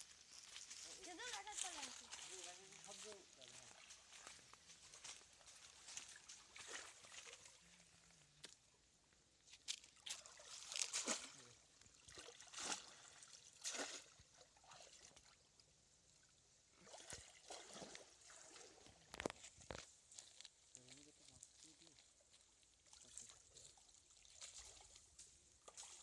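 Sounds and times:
shallow water splashing: 0:01.6 - 0:08.1, 0:09.8 - 0:15.6, 0:16.2 - 0:19.2.

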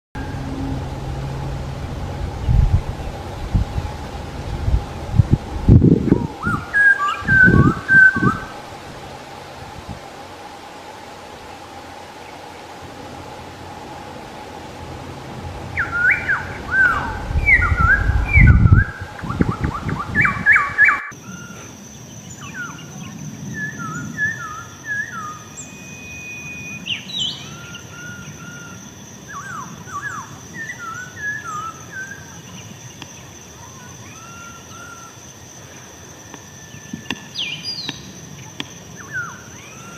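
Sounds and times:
bird singing whistled notes: 0:06.0 - 0:08.6, 0:15.7 - 0:39.9.

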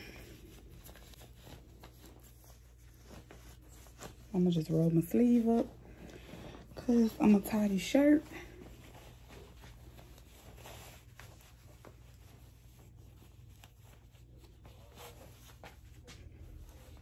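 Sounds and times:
fabric rustling: 0:00.0 - 0:17.0
low room hum: 0:00.0 - 0:17.0.

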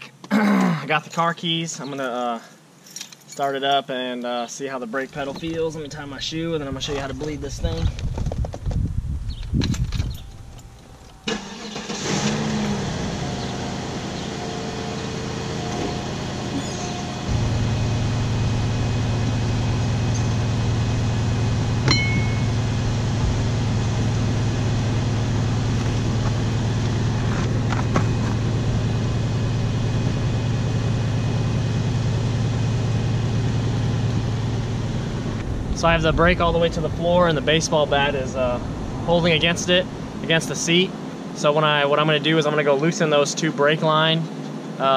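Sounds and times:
steady low hum: 0:04.2 - 0:44.5
car engine starting and idling: 0:09.7 - 0:42.3.

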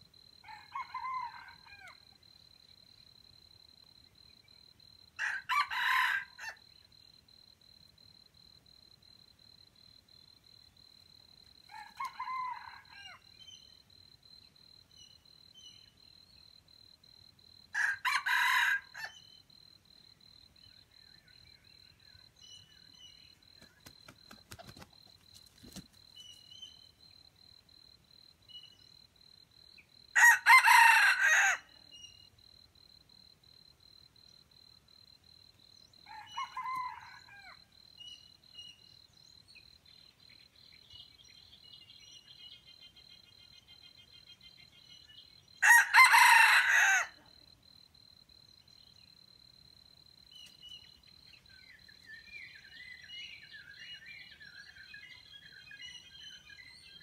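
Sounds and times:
roosters crowing: 0:05.2 - 0:06.6, 0:17.8 - 0:19.1, 0:30.2 - 0:31.7, 0:36.1 - 0:37.6, 0:45.6 - 0:47.2.

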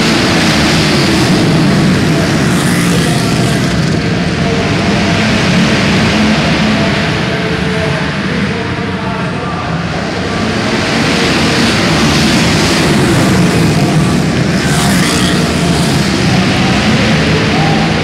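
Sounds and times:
racing motorcycles passing: 0:00.0 - 0:08.8, 0:10.0 - 0:18.0.

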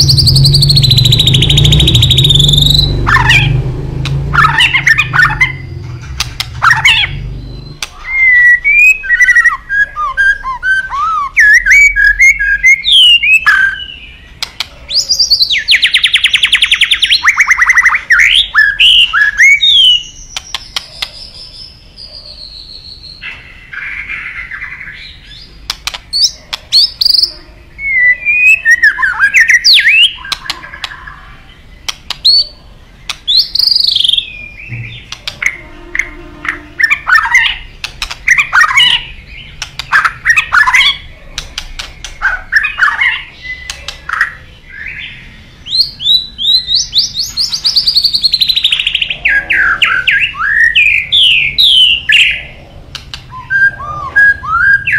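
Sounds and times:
bird singing whistled phrases: 0:00.0 - 0:03.6, 0:06.6 - 0:14.2, 0:26.2 - 0:30.6, 0:33.3 - 0:35.8, 0:42.1 - 0:52.4, 0:53.3 - 0:54.9
bird sharp clicking notes: 0:00.0 - 0:08.0, 0:14.3 - 0:14.8, 0:19.8 - 0:21.2, 0:25.6 - 0:27.3, 0:29.6 - 0:31.0, 0:31.8 - 0:44.4, 0:52.9 - 0:53.4
bird fast trill: 0:00.0 - 0:31.2, 0:31.8 - 0:52.5.

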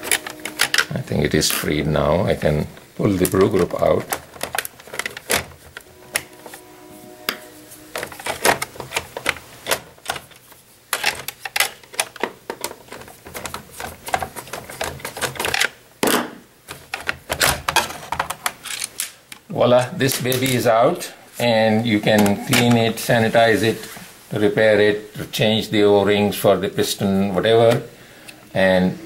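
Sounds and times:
plastic clicking and rattling: 0:00.0 - 0:00.9, 0:03.2 - 0:06.3, 0:08.0 - 0:15.8, 0:16.7 - 0:20.6.

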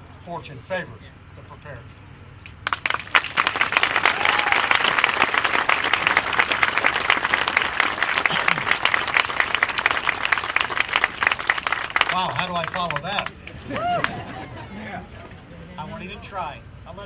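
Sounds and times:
crowd applauding: 0:02.6 - 0:14.6.

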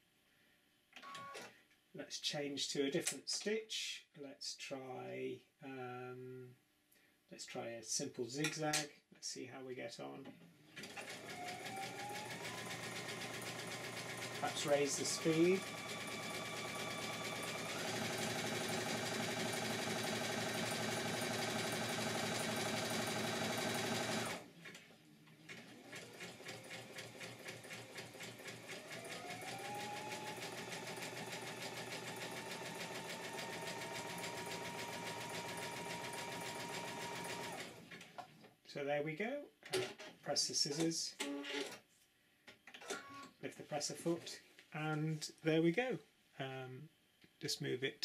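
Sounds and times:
sewing machine stitching: 0:10.8 - 0:24.5, 0:25.5 - 0:38.1.

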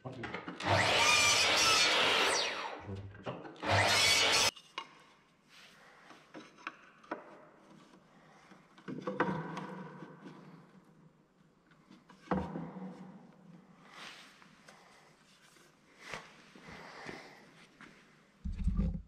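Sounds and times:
miter saw cutting wood: 0:00.6 - 0:02.9, 0:03.6 - 0:04.5.

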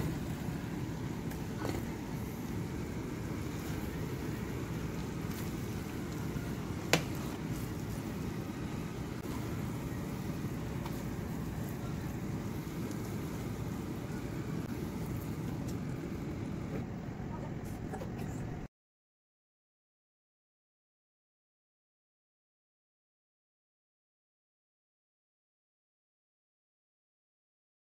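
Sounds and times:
steady low rumble: 0:00.0 - 0:18.7.

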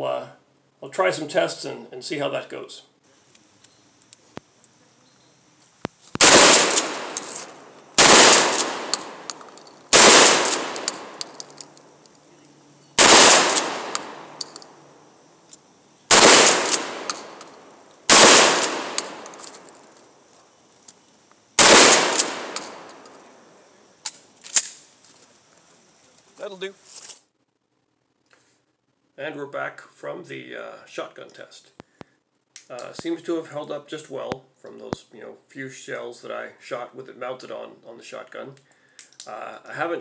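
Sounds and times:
shotgun blasts: 0:06.2 - 0:11.4, 0:13.0 - 0:14.4, 0:16.1 - 0:19.6, 0:21.6 - 0:23.0.

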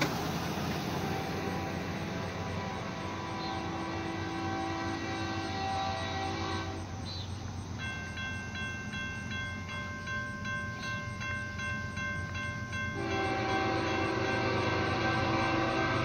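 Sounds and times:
railroad crossing bell ringing: 0:00.0 - 0:16.0
locomotive horn: 0:00.8 - 0:07.1, 0:12.9 - 0:16.0.

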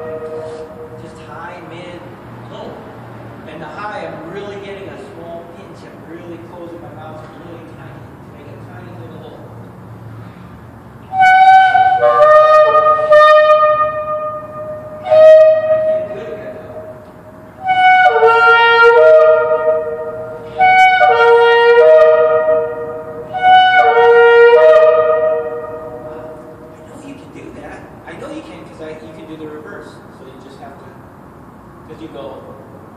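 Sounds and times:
ram's-horn trumpets blowing: 0:00.0 - 0:02.2, 0:10.1 - 0:27.3.

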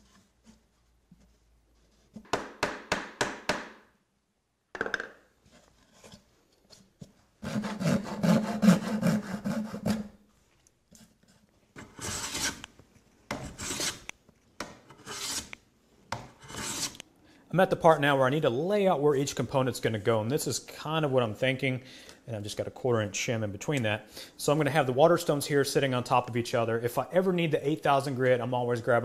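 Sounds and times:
hand plane shaving wood: 0:07.4 - 0:10.2, 0:11.8 - 0:12.7, 0:13.3 - 0:14.1, 0:14.9 - 0:15.6, 0:16.4 - 0:17.0.

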